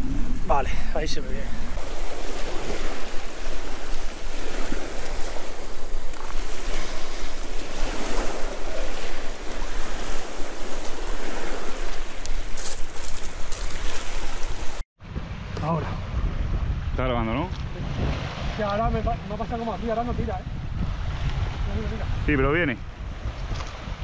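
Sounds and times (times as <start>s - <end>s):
sea waves washing on shore: 0.0s - 17.0s
wind buffeting microphone: 0.0s - 24.0s.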